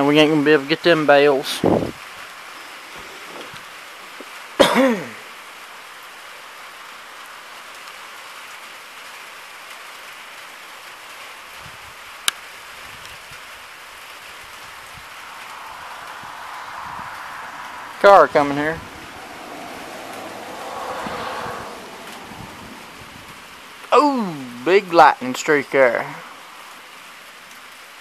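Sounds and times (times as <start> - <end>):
rain falling: 0.0 - 28.0
person throat sound: 4.6 - 5.3.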